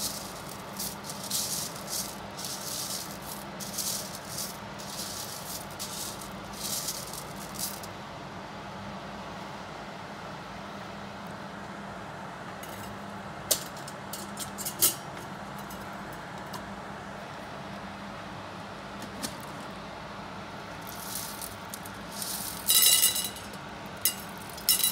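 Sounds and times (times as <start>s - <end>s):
coffee beans clattering into metal canister: 0.0s - 7.9s, 20.8s - 24.9s
light clicks of coffee beans: 0.0s - 7.9s, 20.8s - 24.9s
fan humming: 0.0s - 24.9s.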